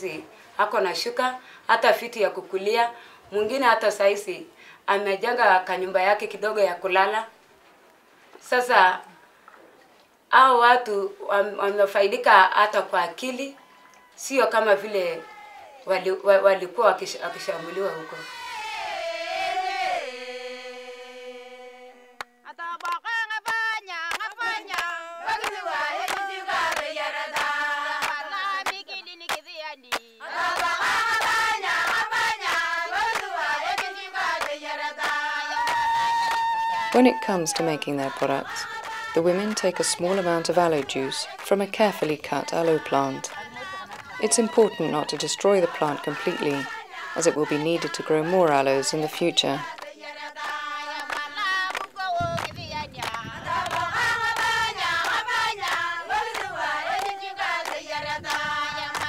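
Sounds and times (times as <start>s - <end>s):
women singing together: 0.0s - 7.3s, 10.4s - 59.0s
hands clapping in rhythm: 22.2s - 48.0s, 49.6s - 59.0s.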